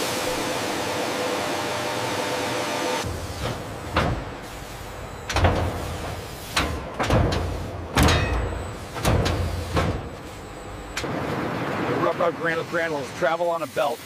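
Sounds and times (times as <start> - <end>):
low mechanical hum: 0.0 - 11.8
heavy machinery thuds and clanks: 3.1 - 10.2.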